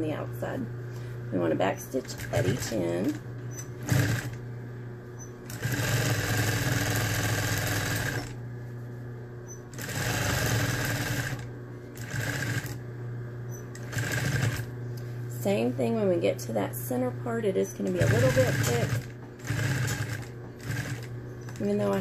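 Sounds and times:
sewing machine motor humming: 0:01.6 - 0:04.4, 0:05.2 - 0:08.4, 0:09.5 - 0:12.8, 0:13.5 - 0:14.7, 0:17.7 - 0:22.0
sewing machine stitching: 0:02.0 - 0:04.4, 0:05.5 - 0:08.4, 0:09.7 - 0:12.8, 0:13.5 - 0:14.7, 0:17.8 - 0:22.0.

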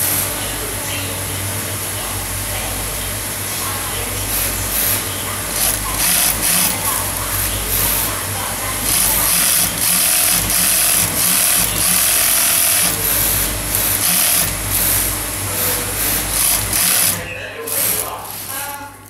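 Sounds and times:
electric motor humming: 0:00.0 - 0:19.0
sewing machine stitching: 0:04.1 - 0:19.0.

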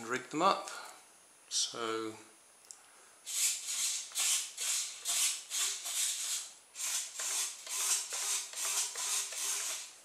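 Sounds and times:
servos whirring in short bursts: 0:03.3 - 0:09.9.

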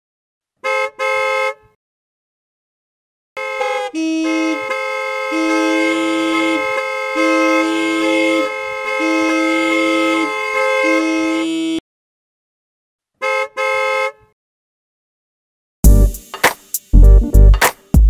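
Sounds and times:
short horn blasts: 0:00.6 - 0:01.8, 0:03.4 - 0:11.8, 0:13.2 - 0:14.3
two-tone vehicle horn: 0:00.6 - 0:01.8, 0:03.4 - 0:11.8, 0:13.2 - 0:14.4.

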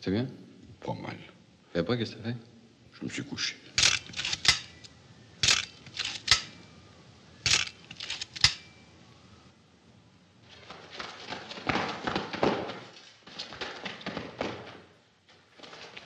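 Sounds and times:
sharp clicks: 0:03.8 - 0:06.6, 0:07.4 - 0:08.7.

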